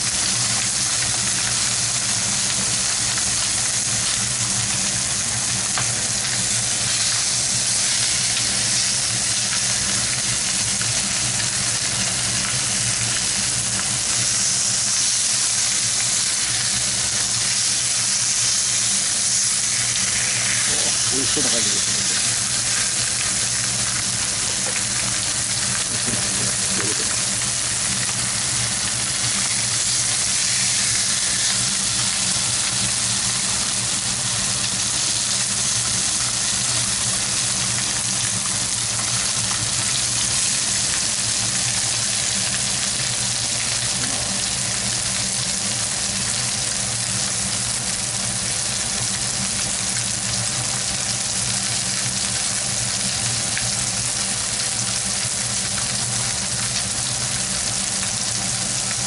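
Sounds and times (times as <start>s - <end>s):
patties sizzling in a frying pan: 0.0s - 59.0s
fat spitting: 25.8s - 27.3s, 43.9s - 44.4s.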